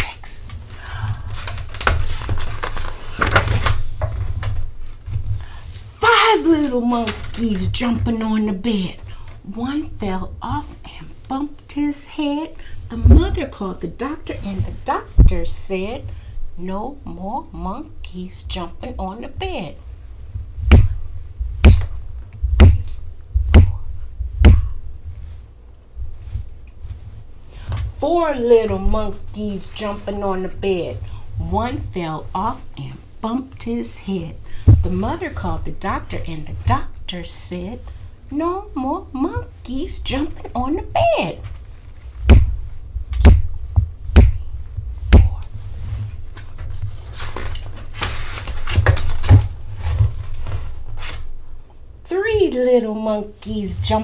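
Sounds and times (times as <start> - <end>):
paper page rustling: 1.4 - 5.2, 46.0 - 51.3.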